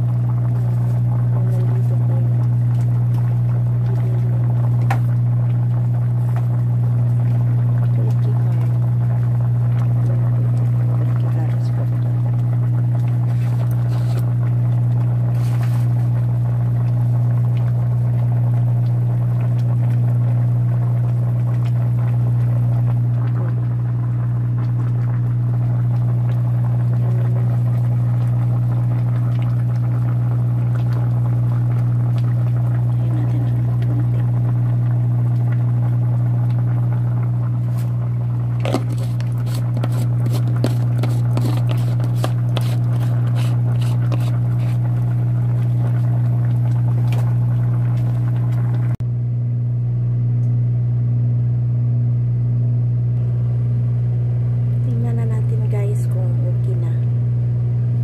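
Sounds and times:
kitchen appliance humming: 0.0s - 49.0s
pot simmering: 0.0s - 49.0s.

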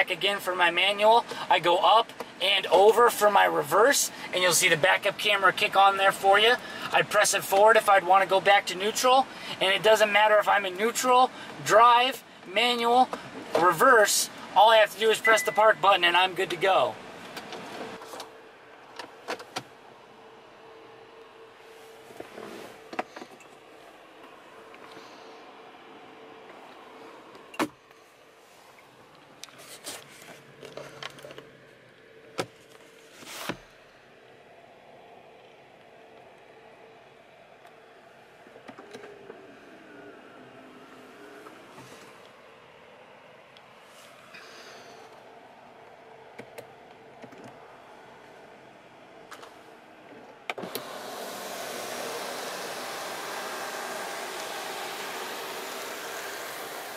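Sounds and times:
faint steady hum: 0.0s - 56.9s
sun visor swish and knock: 32.4s - 33.7s
sunroof motor whirring: 33.3s - 44.4s, 50.5s - 56.9s.

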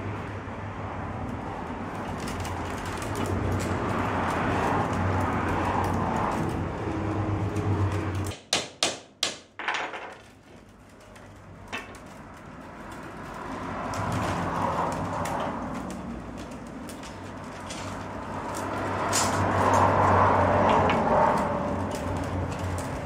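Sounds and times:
sharp knocks: 8.3s - 10.2s
willow rods rustling: 10.2s - 23.0s.

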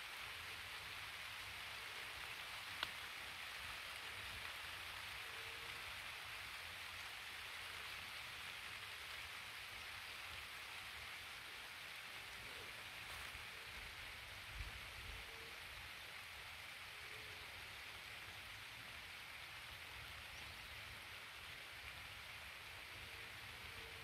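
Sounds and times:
light rain falling: 0.0s - 24.0s
sharp tick: 2.8s - 3.0s.

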